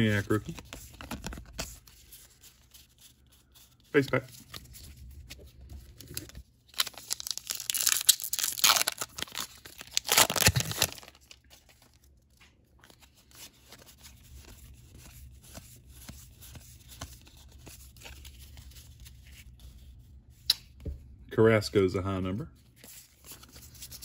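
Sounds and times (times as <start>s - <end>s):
cards flicking and rustling: 0.0s - 19.8s
wrapper tearing and crinkling: 6.0s - 12.0s.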